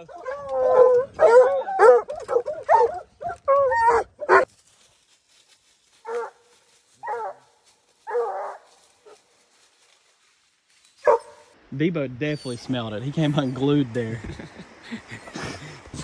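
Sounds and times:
hound baying: 0:00.0 - 0:04.5, 0:06.0 - 0:06.4, 0:07.0 - 0:07.4, 0:08.0 - 0:09.2
hounds howling and whining: 0:00.0 - 0:04.5, 0:07.0 - 0:07.4, 0:08.0 - 0:09.2.

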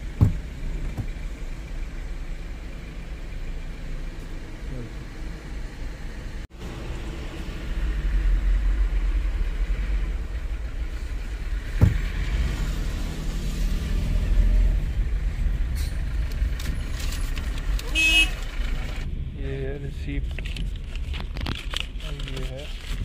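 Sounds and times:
car engine: 0:00.0 - 0:23.0
road rumble: 0:00.0 - 0:23.0.

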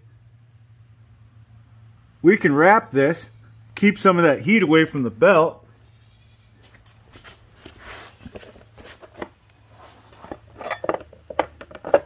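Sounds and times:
low steady hum: 0:00.0 - 0:12.0
handling scuffs and taps: 0:06.6 - 0:09.4.

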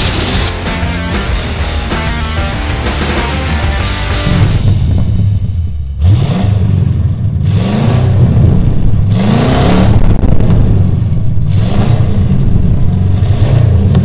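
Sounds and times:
car engine revving: 0:00.0 - 0:14.0
steady low rumble: 0:04.0 - 0:14.0.

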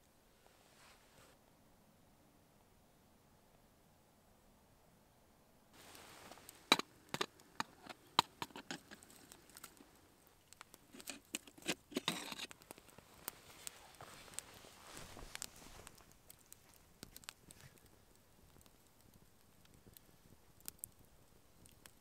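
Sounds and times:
wood fire crackling: 0:05.8 - 0:22.0
brief rustle: 0:10.9 - 0:16.0.

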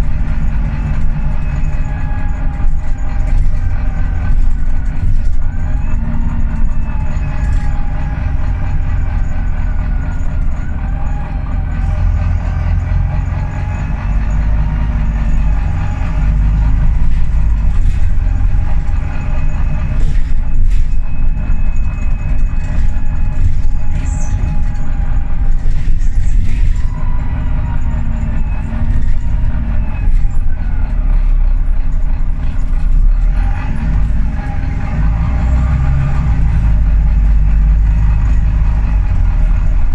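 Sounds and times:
bus engine rumble: 0:00.0 - 0:39.9
drivetrain whine: 0:00.0 - 0:39.9
knocks and rattles: 0:00.0 - 0:39.9.

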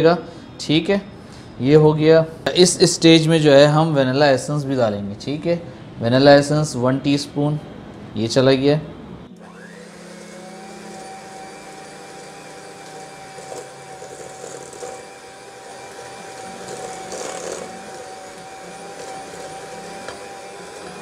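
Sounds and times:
electric hand mixer running: 0:09.4 - 0:21.0.

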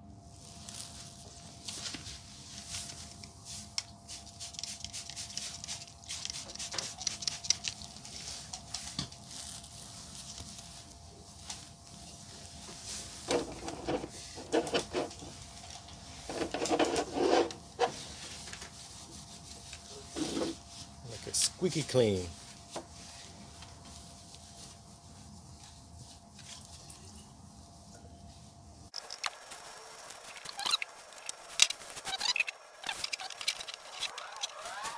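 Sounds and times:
cloth rubbing on plastic: 0:12.6 - 0:21.0, 0:29.5 - 0:34.9.

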